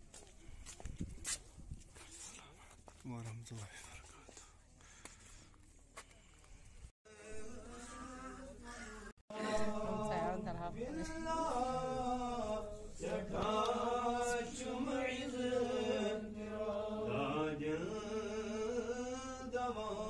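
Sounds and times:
person chanting: 0:07.1 - 0:15.3.

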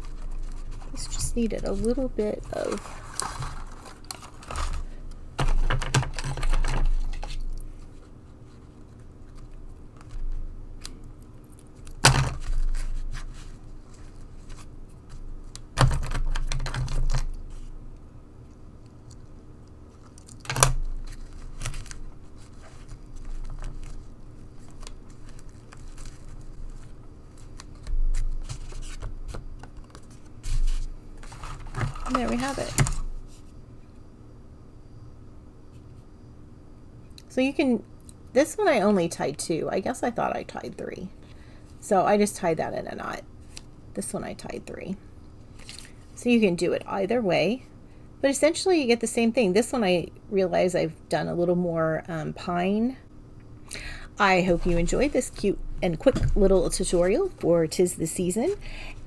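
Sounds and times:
paper and ribbon rustling: 0:00.0 - 0:05.0, 0:20.9 - 0:29.1, 0:29.8 - 0:33.4, 0:54.2 - 0:57.3.

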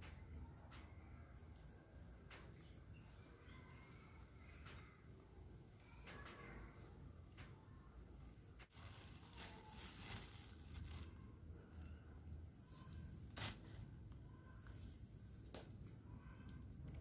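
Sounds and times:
plastic bag crinkling and tearing: 0:08.7 - 0:11.2, 0:13.2 - 0:13.9.

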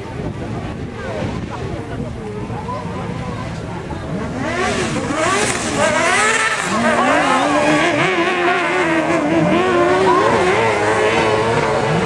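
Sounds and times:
race car engines revving: 0:00.0 - 0:12.0.

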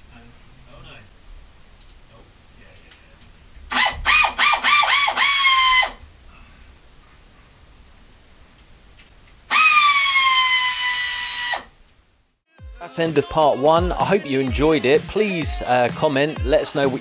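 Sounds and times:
power tool motor running: 0:03.7 - 0:06.0, 0:09.5 - 0:11.7.

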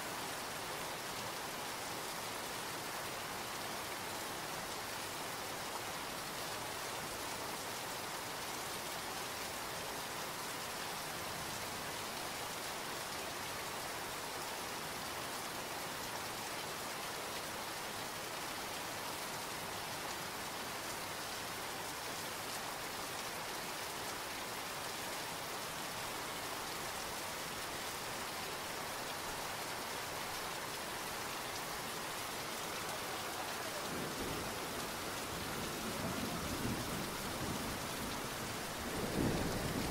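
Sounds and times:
steady rain falling: 0:00.0 - 0:39.9.

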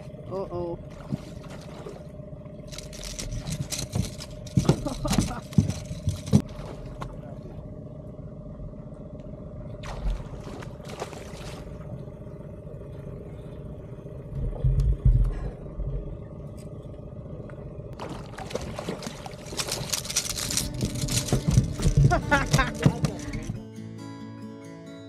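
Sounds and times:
outboard motor running: 0:00.0 - 0:23.6
low thumps: 0:14.3 - 0:16.2.

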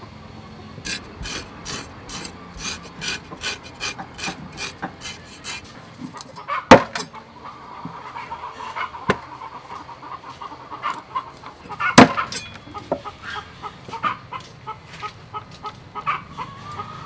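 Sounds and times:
scraping fish on chopping block: 0:00.8 - 0:07.0.

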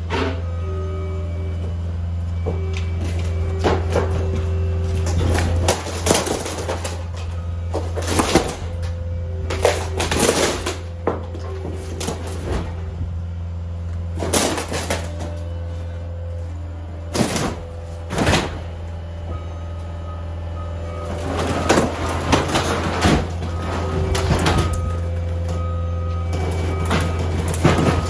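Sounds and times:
loader engine running: 0:00.0 - 0:28.0
wood cracking and crashing: 0:02.7 - 0:12.8, 0:14.0 - 0:15.6, 0:17.1 - 0:18.9, 0:21.0 - 0:28.0.

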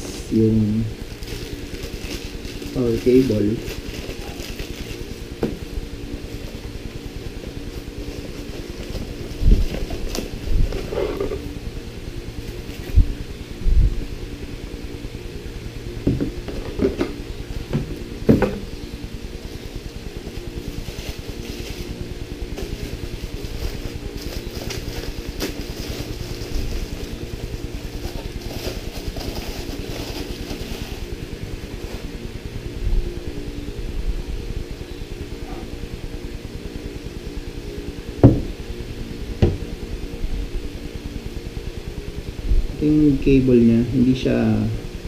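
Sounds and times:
low hum: 0:00.0 - 0:45.0
knocks and thumps on cardboard: 0:17.7 - 0:18.6, 0:38.2 - 0:38.6, 0:39.4 - 0:39.6.

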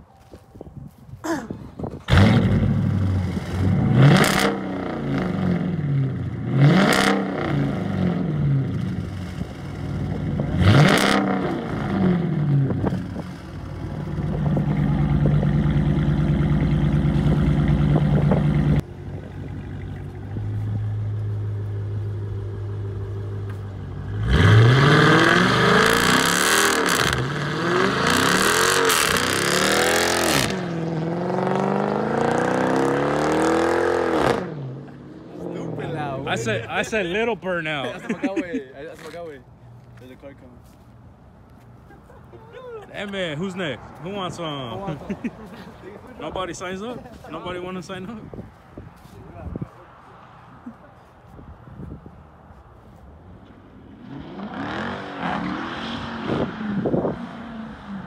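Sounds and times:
car engine revving: 0:02.1 - 0:36.8, 0:53.8 - 0:58.0.

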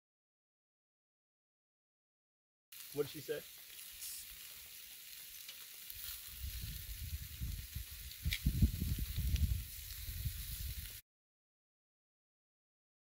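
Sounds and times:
meat sizzling on grill: 0:02.8 - 0:11.0.

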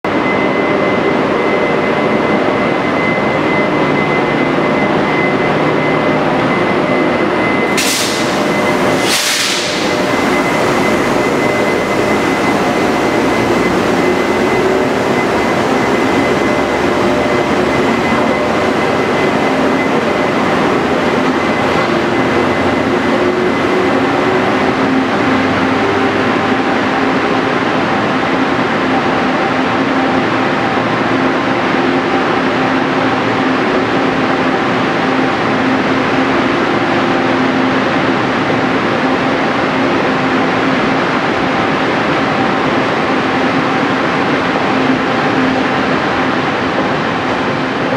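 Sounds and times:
train rumbling: 0:00.1 - 0:47.9
sharp air hisses: 0:07.8 - 0:10.1.

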